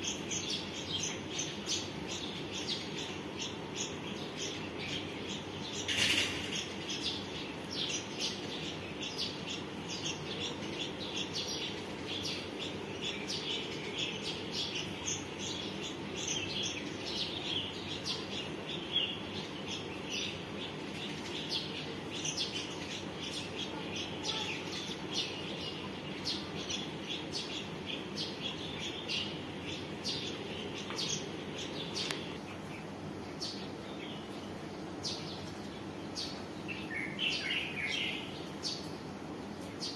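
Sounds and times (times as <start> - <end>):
low background noise: 0.0 - 39.9
small birds chirping: 0.0 - 39.9.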